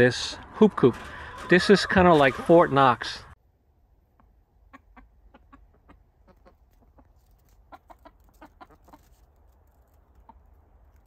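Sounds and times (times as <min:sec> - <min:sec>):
chickens clucking softly: 0:04.1 - 0:09.2, 0:10.0 - 0:10.5.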